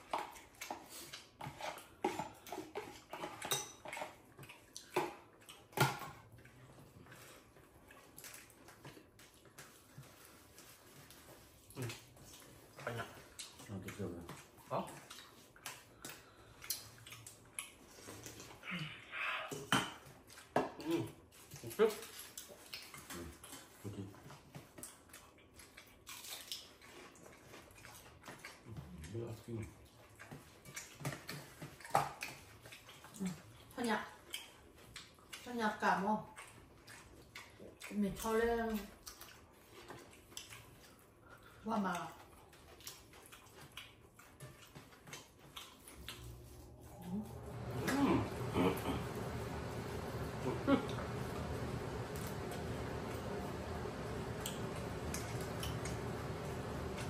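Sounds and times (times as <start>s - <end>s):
chewing smacks: 3.9s - 18.6s, 20.0s - 35.5s, 36.2s - 47.8s.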